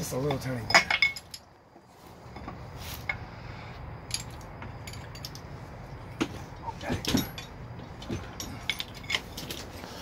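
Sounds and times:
light metallic clinks and taps: 0:00.2 - 0:01.6, 0:04.0 - 0:05.6, 0:07.0 - 0:09.7.

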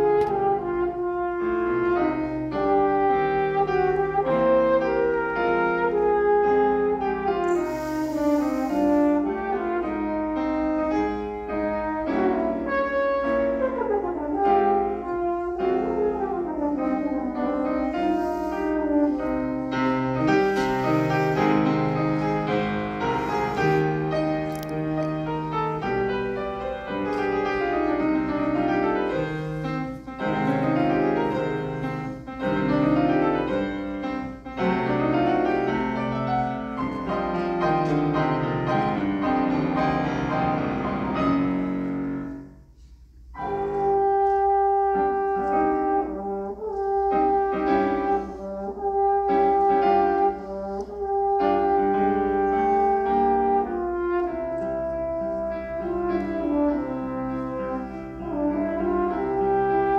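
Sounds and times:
french horn long notes: 0:00.0 - 0:24.7, 0:43.4 - 0:59.9
grand piano chords: 0:00.0 - 0:59.9.

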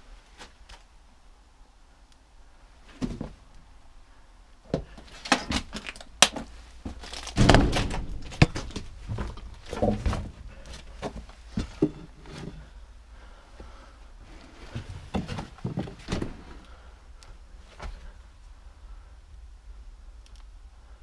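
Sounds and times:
thud: 0:06.9 - 0:12.1.

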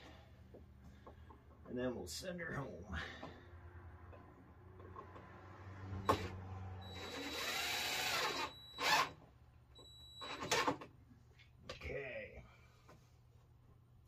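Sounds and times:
power drill driving screws: 0:06.0 - 0:09.2, 0:10.2 - 0:10.8.

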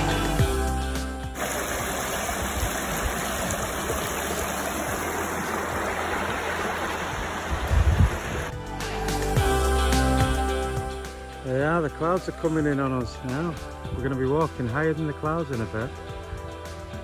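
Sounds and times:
stream rushing over stones: 0:01.3 - 0:08.6.

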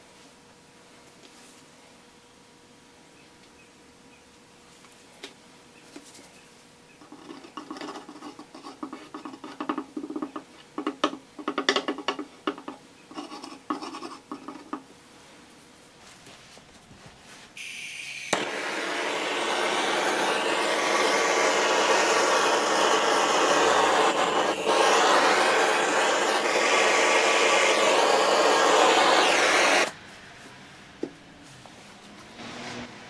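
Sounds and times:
gas hissing: 0:17.6 - 0:30.0
torch ignition click: 0:18.2 - 0:29.9
torch flame rushing: 0:18.4 - 0:30.0.

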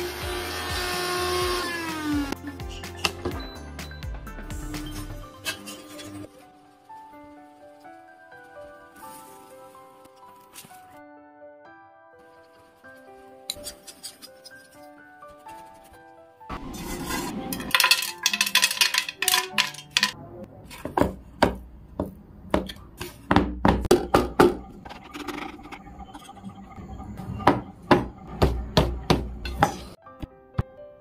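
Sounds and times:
spoon scraping metal cookware: 0:04.7 - 0:06.3, 0:13.5 - 0:15.6, 0:16.5 - 0:20.9.

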